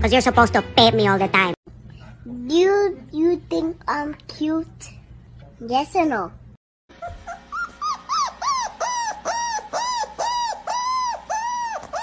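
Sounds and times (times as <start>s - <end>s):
high-pitched whining cries: 6.9s - 12.0s.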